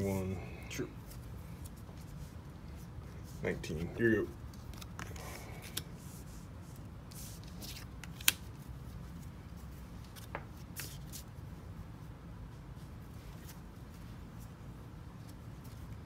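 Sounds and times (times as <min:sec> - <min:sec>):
low steady hum: 0:00.0 - 0:16.0
cards rustling and sliding: 0:01.0 - 0:11.3.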